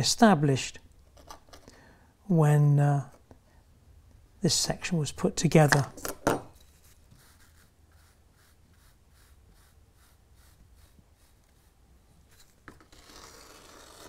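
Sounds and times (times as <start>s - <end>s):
small tool scratching sand: 6.7s - 14.0s
fingertip rubbing sand: 7.2s - 11.8s.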